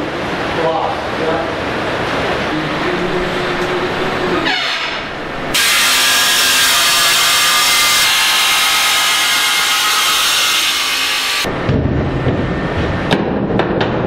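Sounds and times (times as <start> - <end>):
power saw cutting wood: 2.9 - 11.5.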